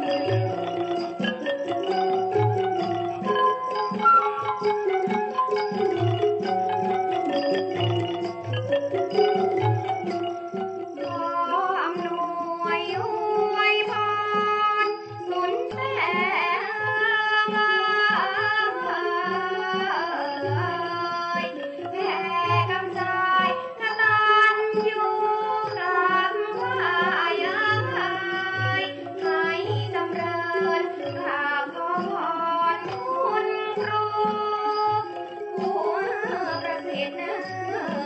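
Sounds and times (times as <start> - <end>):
melody with sliding notes: 0.0 - 11.4.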